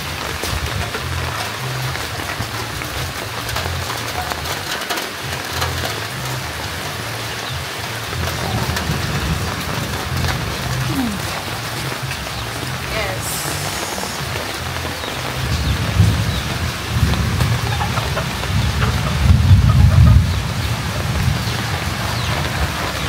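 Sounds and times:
steady hiss: 7.4s - 16.4s.

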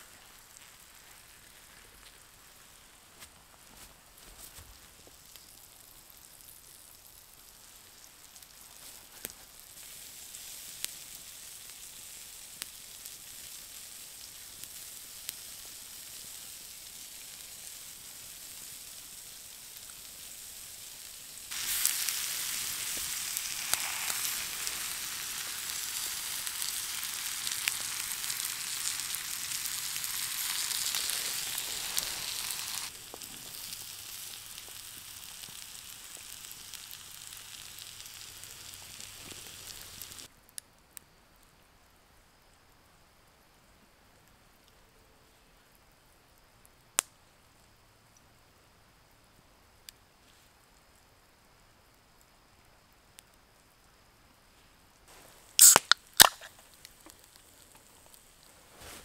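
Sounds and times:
steak sizzling on hot rock: 0.0s - 3.4s, 4.4s - 40.3s, 55.1s - 59.0s
campfire crackles: 0.0s - 59.0s.

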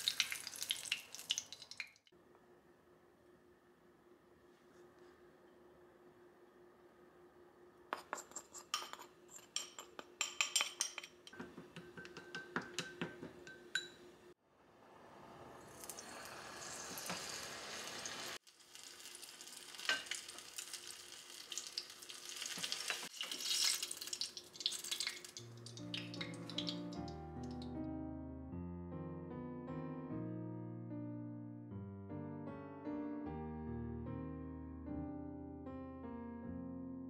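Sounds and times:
batter sizzling in hot oil: 0.0s - 2.0s, 15.0s - 27.2s
chopsticks tapping glass bowl: 9.6s - 14.0s.

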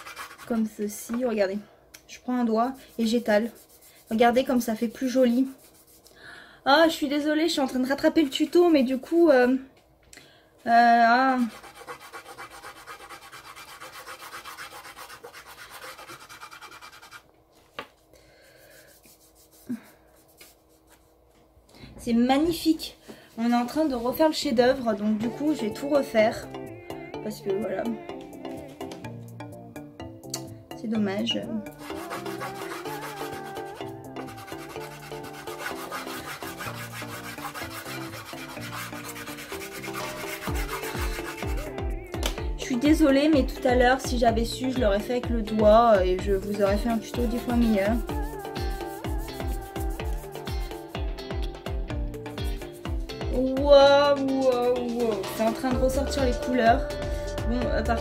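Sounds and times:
pastel rubbing on paper: 0.0s - 0.7s, 2.9s - 6.1s, 11.4s - 17.3s, 18.6s - 21.2s, 31.8s - 41.7s, 47.2s - 50.6s
background music with bass line: 26.4s - 58.0s.

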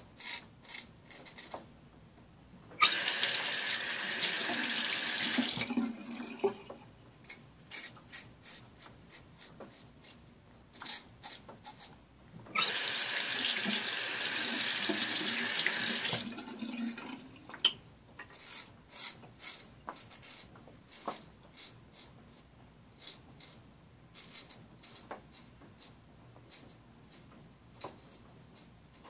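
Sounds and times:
running tap: 2.8s - 6.7s, 12.6s - 17.7s
razor scraping stubble: 24.2s - 29.0s.

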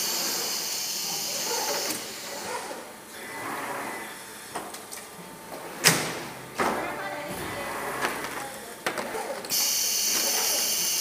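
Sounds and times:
machine running: 5.2s - 11.0s.

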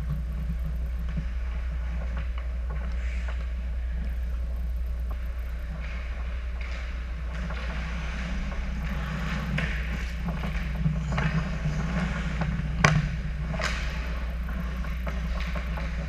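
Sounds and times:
low hum: 0.0s - 16.0s
sticks and puck clacking: 0.0s - 16.0s
skate blades scraping ice: 5.2s - 16.0s.

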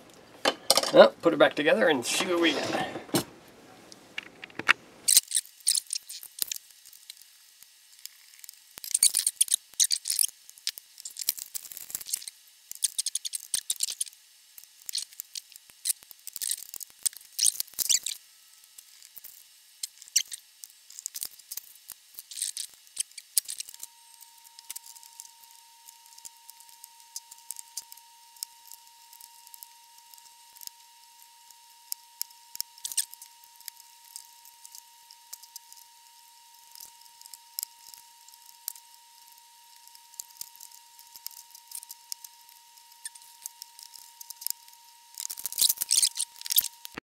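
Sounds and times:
faint steady tone: 23.7s - 47.0s.

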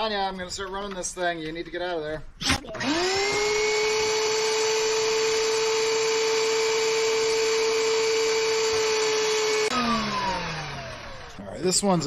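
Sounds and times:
thickness planer whining: 2.4s - 12.0s.

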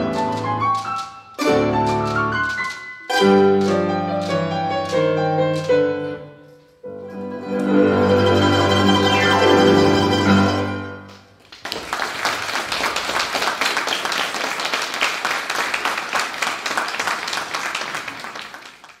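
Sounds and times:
string ensemble final chord: 7.2s - 11.0s
audience applauding: 9.2s - 19.0s.

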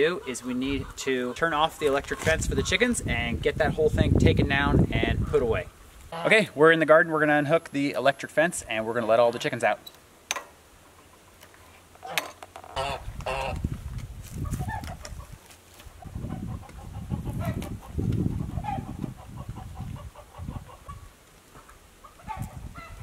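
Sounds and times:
chickens clucking: 0.0s - 3.1s, 5.0s - 6.4s, 10.8s - 13.7s, 14.4s - 23.0s.

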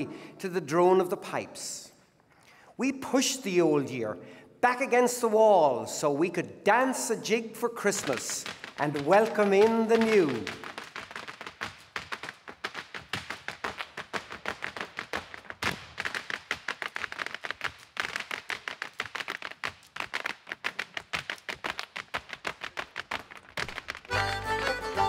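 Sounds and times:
hard shoes tapping on wooden stage: 7.8s - 24.3s
fiddle and band playing: 24.1s - 25.0s.

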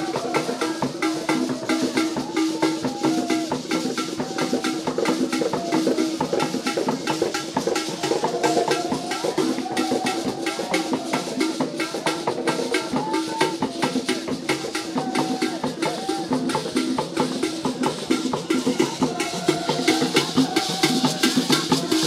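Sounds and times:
drums with clacking strokes: 0.0s - 22.0s.

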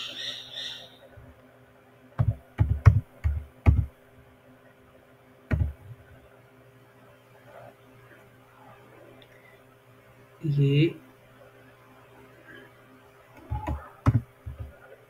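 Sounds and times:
computer keyboard keystrokes: 5.5s - 5.8s.

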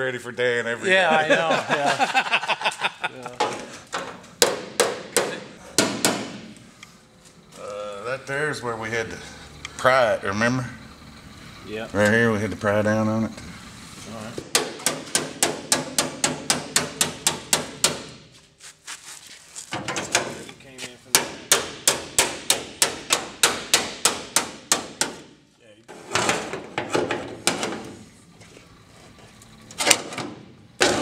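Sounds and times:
hammer tapping on sheet steel: 4.4s - 6.5s, 14.4s - 18.2s, 21.1s - 25.3s.

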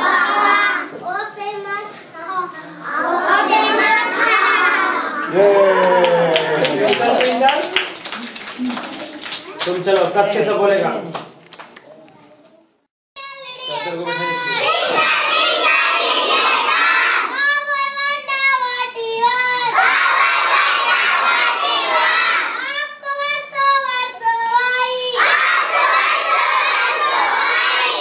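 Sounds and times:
children singing in unison: 0.0s - 0.9s, 2.8s - 5.2s, 14.5s - 17.4s, 19.4s - 22.6s, 25.0s - 28.0s.

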